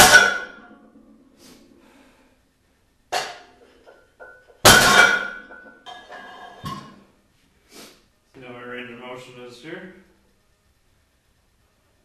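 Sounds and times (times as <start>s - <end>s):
weight plates clanking: 3.2s - 7.0s.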